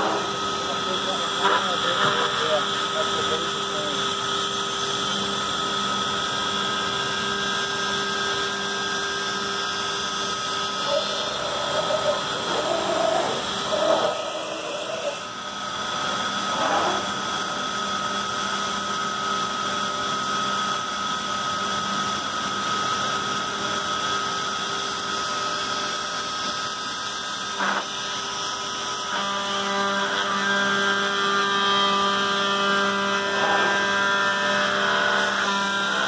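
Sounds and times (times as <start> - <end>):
router spindle whining: 0.0 - 24.7, 32.2 - 36.0.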